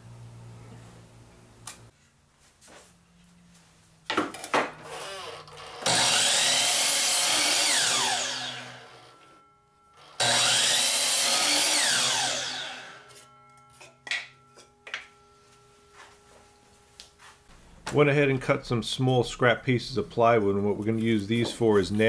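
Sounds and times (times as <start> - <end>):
miter saw cutting and winding down: 4.8 - 9.3, 10.0 - 13.3.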